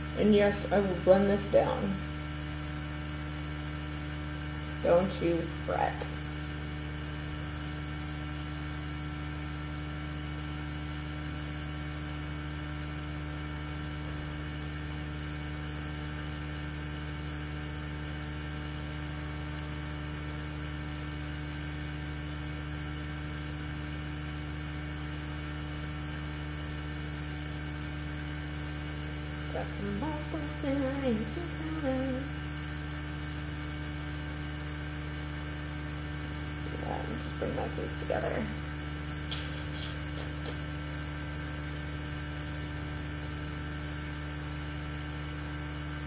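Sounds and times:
electrical mains hum with hiss: 0.0 - 46.0.

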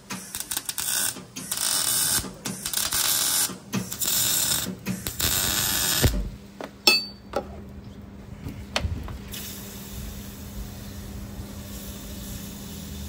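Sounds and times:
arc welding crackling hiss: 0.0 - 6.3, 9.3 - 13.0
metallic clink: 6.9 - 7.2.

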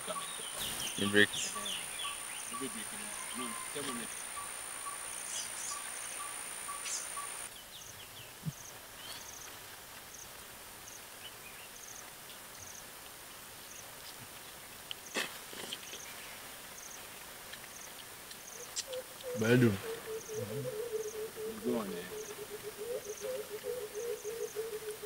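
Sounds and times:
insects buzzing: 0.0 - 13.0, 15.0 - 25.0.

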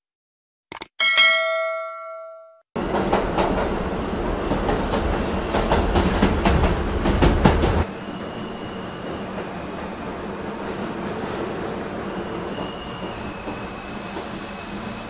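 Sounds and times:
notification bell chime: 1.0 - 2.6
train rumbling on rails: 2.8 - 15.0.

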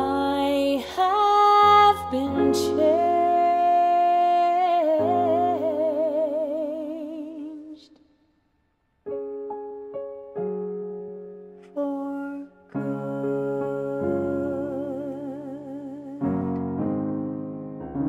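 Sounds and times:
soft piano chords: 0.0 - 7.7, 9.1 - 18.0
woman singing with vibrato: 0.0 - 7.9, 11.7 - 16.4
sustained keyboard chords: 12.8 - 18.0.

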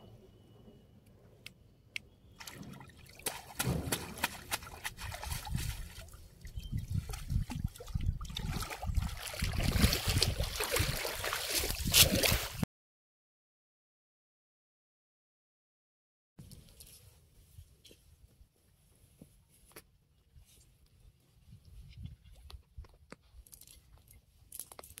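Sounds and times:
small water splashes: 2.3 - 12.6
water sloshing and trickling: 2.3 - 12.6.

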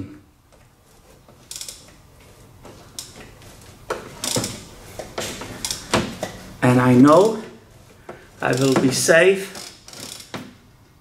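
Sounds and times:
ratchet clicking: 1.4 - 2.0, 4.2 - 6.0, 8.5 - 8.8, 9.5 - 10.4.

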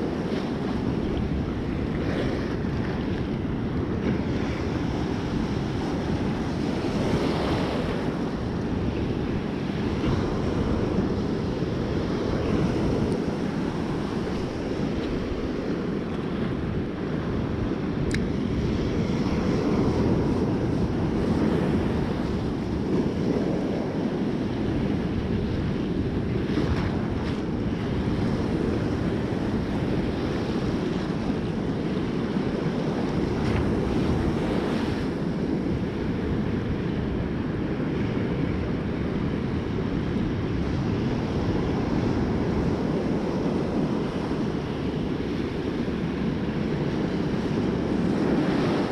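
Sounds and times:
surf washing on beach: 0.0 - 48.9
wind buffeting microphone: 0.0 - 48.9.

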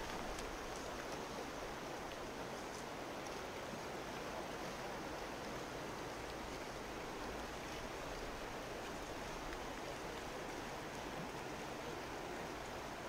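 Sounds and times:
river flowing over gravel: 0.0 - 13.0.

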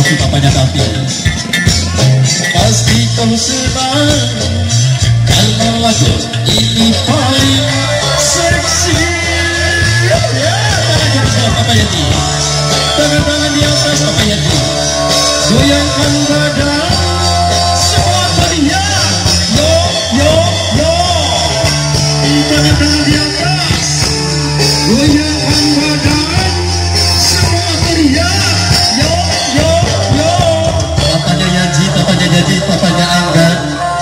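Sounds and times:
amplified pop music from speakers: 0.0 - 34.0
person singing: 1.9 - 34.0.

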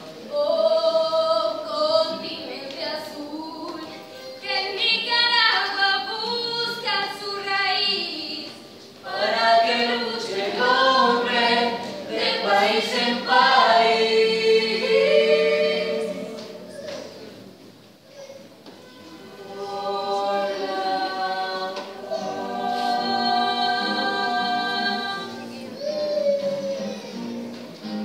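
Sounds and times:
youth choir singing in harmony: 0.2 - 3.8, 9.0 - 17.4, 19.0 - 25.8.

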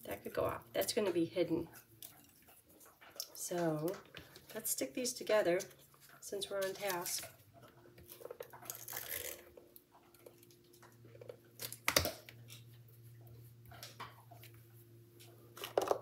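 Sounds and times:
paper strips handled and rustling: 6.5 - 7.4.

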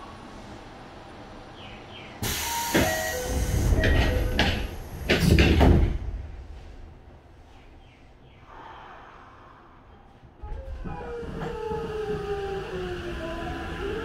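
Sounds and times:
compressed air hiss: 2.2 - 3.7.

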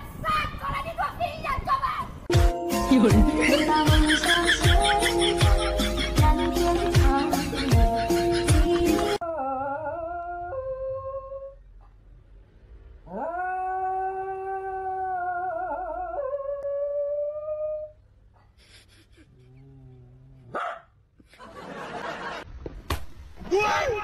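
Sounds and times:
dog low moan: 19.2 - 20.5.

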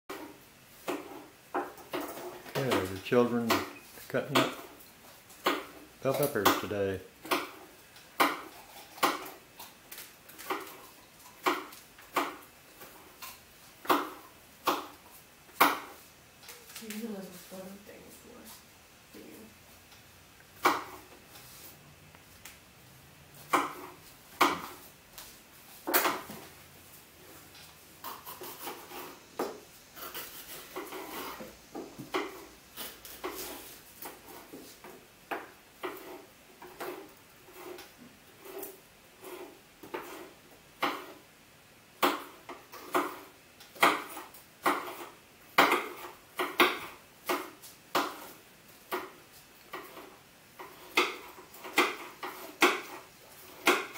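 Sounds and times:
knife chopping on wooden board: 3.4 - 4.7, 5.4 - 5.8, 6.4 - 9.4, 11.4 - 15.0, 15.6 - 16.0, 20.6 - 21.1, 23.4 - 24.8, 39.2 - 41.2, 42.0 - 53.9.

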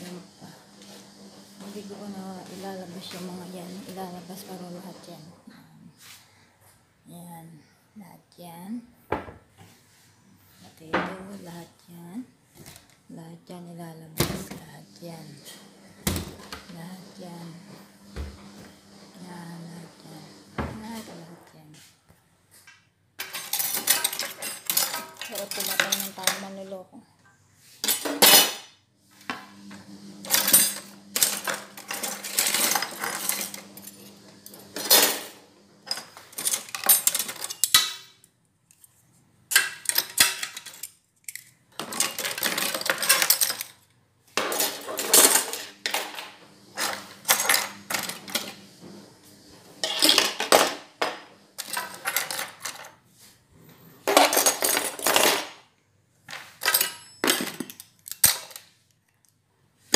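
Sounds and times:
metal utensils clattering: 23.2 - 26.6, 27.8 - 28.7, 30.2 - 38.1, 39.5 - 43.8, 44.4 - 48.7, 49.8 - 53.0, 54.0 - 55.6, 56.6 - 58.6.

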